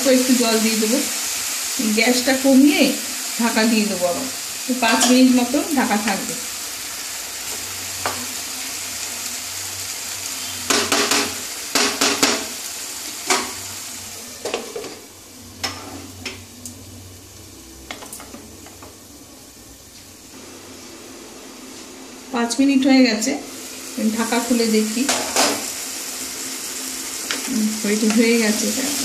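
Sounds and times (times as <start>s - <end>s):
vegetables sizzling in a pan: 0.0s - 29.0s
spatula knocking against pan: 10.7s - 12.5s.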